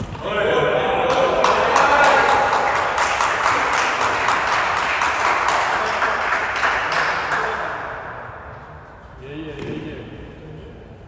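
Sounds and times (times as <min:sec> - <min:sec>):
people clapping in a hall: 0:01.0 - 0:08.1.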